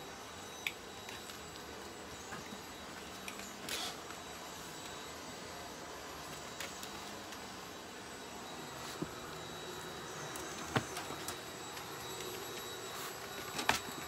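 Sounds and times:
thin high whine: 0.0 - 14.0.

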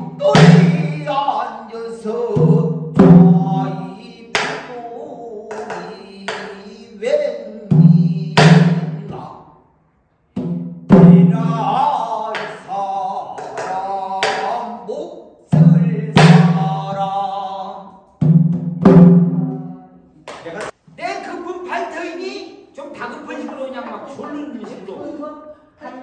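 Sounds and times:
person singing long bending notes: 0.0 - 9.4, 10.9 - 18.0
barrel drum strikes: 18.2 - 19.7.

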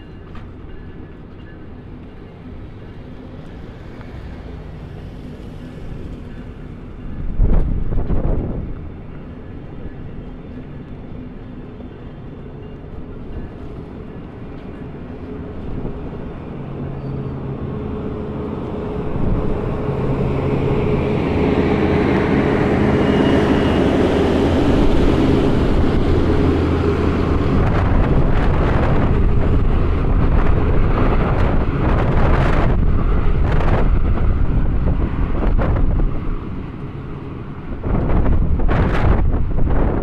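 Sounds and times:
diesel locomotive engine hum: 0.0 - 40.0
train coaches rumbling past: 0.0 - 40.0
wind buffeting microphone: 5.5 - 9.8, 13.0 - 40.0.

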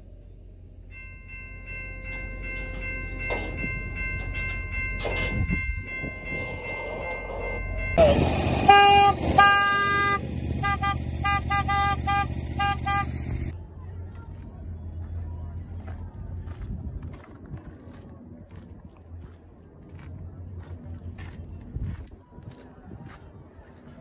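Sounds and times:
train air horn: 6.7 - 13.5.

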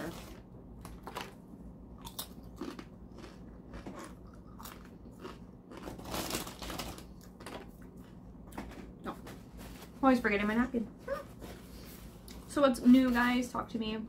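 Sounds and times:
corn chips crunching: 0.0 - 9.0.

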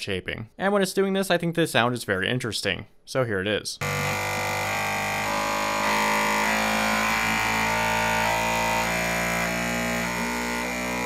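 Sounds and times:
printer motors buzzing tones: 3.8 - 11.0.

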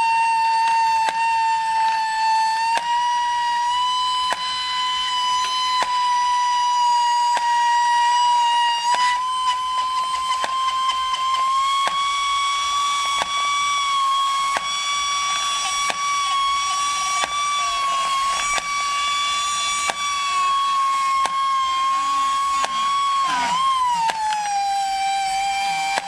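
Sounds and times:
toy high-pitched whine: 0.0 - 26.0
toy mechanism clicks: 8.9 - 26.0.

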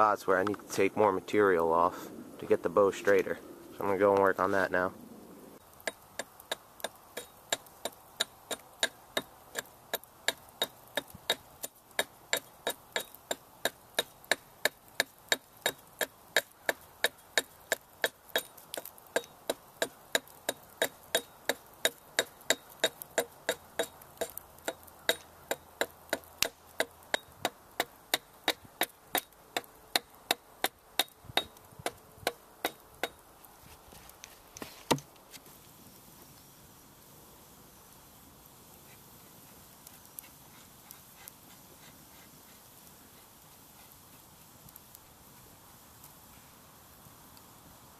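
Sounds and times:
hatchet chopping wood: 5.8 - 33.2.

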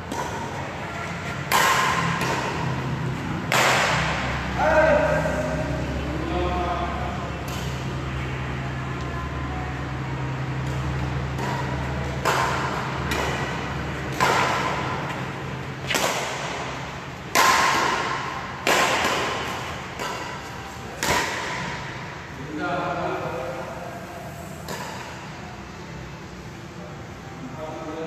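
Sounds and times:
racket hitting shuttlecock: 0.0 - 4.4, 7.4 - 8.0, 10.3 - 22.2, 24.6 - 25.3.

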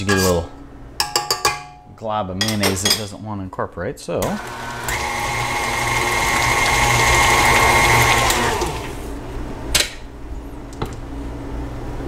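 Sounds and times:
stand mixer motor whine: 4.3 - 9.0.

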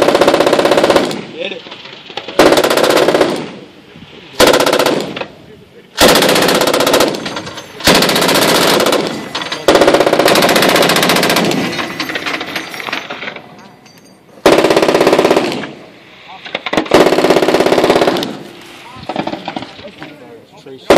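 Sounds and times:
machine guns firing bursts: 0.0 - 1.4, 2.4 - 3.6, 4.4 - 5.2, 6.0 - 12.6, 14.4 - 15.8, 16.7 - 18.5.

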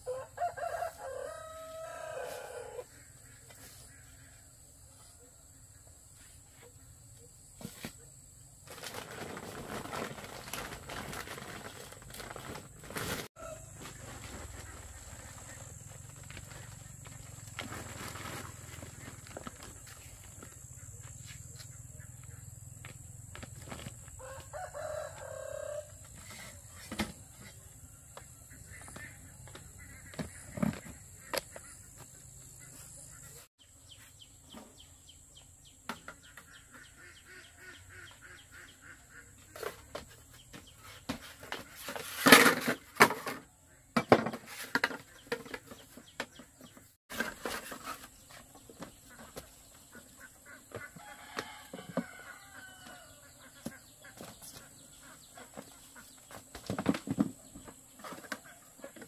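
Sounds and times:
knocks and rustles: 28.8 - 32.1, 55.4 - 59.0.

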